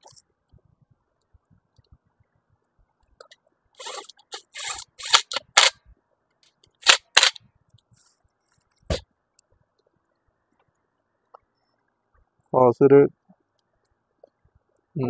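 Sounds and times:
tool rattles and clicks: 3.8s - 5.8s, 6.8s - 7.4s.

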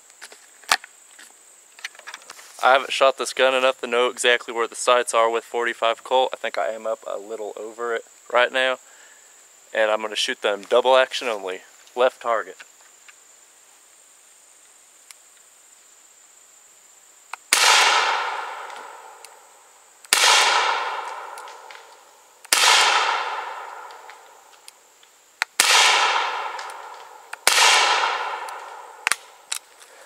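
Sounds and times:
gunshots with long echo: 17.5s - 19.2s, 20.1s - 24.5s, 25.6s - 29.5s.

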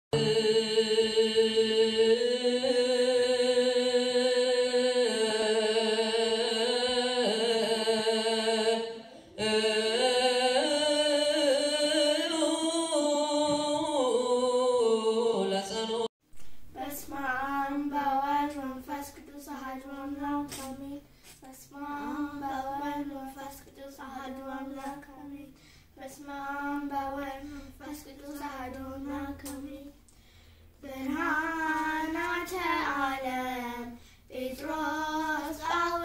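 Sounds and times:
sung church chant: 0.1s - 16.2s, 30.8s - 36.0s.

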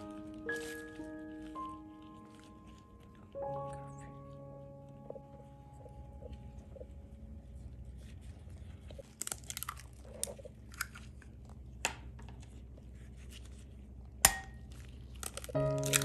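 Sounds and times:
eggs cracking into glass bowl: 14.2s - 16.0s.

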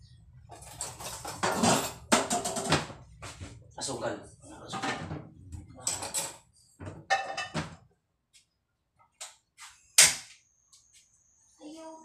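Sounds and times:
cookware clattering: 0.5s - 3.0s, 4.6s - 7.8s.

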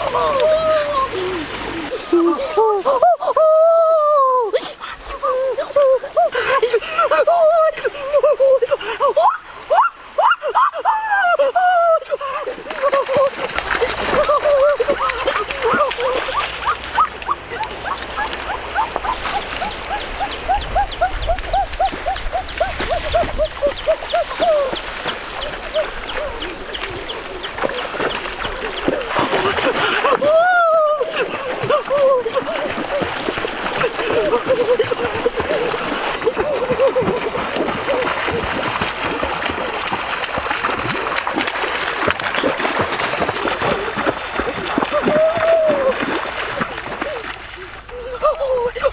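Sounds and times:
water splashing from wading: 12.0s - 48.9s
stream rushing: 12.4s - 48.9s.

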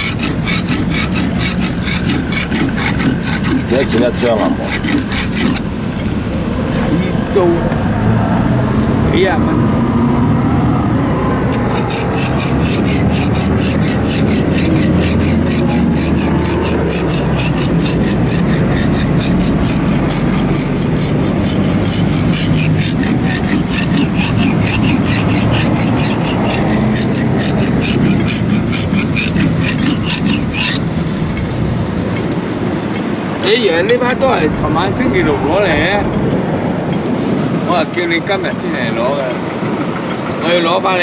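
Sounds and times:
cleaver grinding on sharpening stone: 0.0s - 7.1s, 11.4s - 37.1s.

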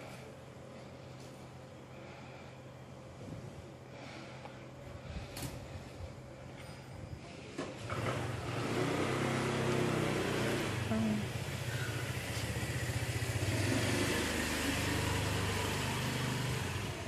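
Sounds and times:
street noise: 6.6s - 17.0s.

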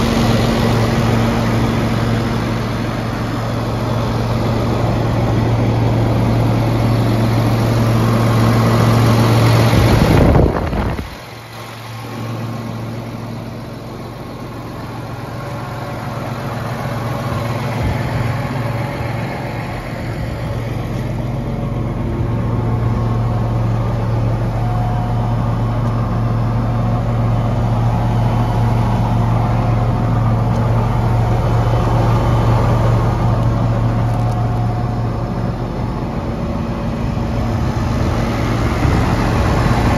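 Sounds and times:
loud rushing noise: 0.0s - 12.9s, 28.0s - 39.9s
diesel tractor engine idling: 0.0s - 39.9s.

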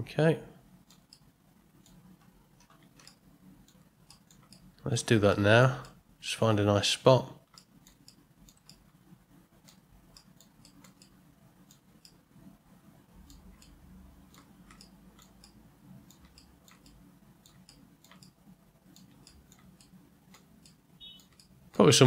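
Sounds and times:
mouse and keyboard clicking: 0.9s - 4.8s, 7.4s - 12.2s, 13.2s - 21.9s.

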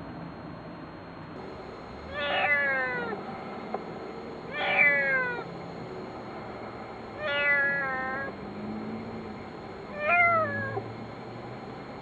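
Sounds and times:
kitten meowing: 2.1s - 3.2s, 4.5s - 5.5s, 7.2s - 8.3s, 9.9s - 10.8s.

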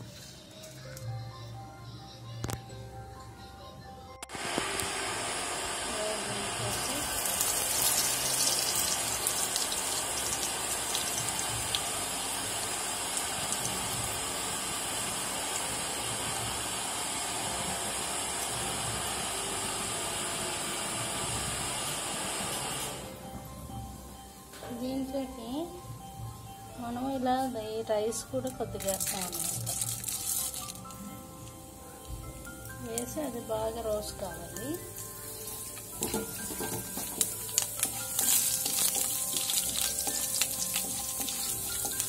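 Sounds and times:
hot oil sizzling and crackling: 4.4s - 20.0s, 28.7s - 31.7s, 34.0s - 42.0s.

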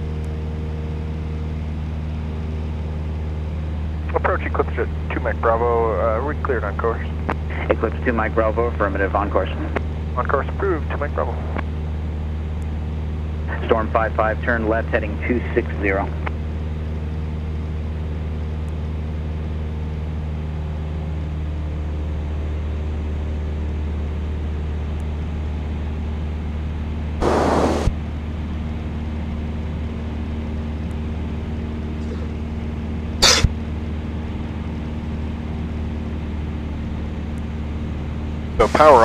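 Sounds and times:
propeller plane engine drone: 0.0s - 39.0s
intercom hiss bursts: 27.2s - 27.9s, 38.6s - 39.0s.

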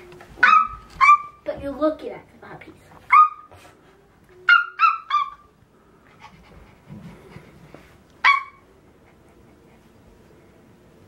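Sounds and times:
child yipping like a puppy: 0.4s - 1.4s, 4.4s - 5.5s, 8.2s - 8.6s.

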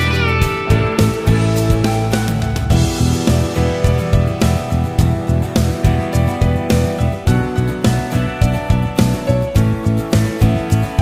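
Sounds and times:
plucked guitar music: 0.0s - 11.0s.

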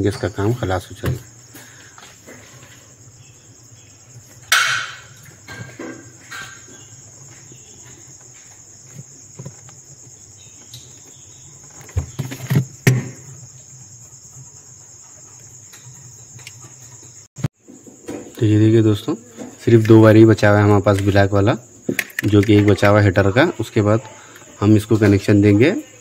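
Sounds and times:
crickets chirring: 0.0s - 26.0s.

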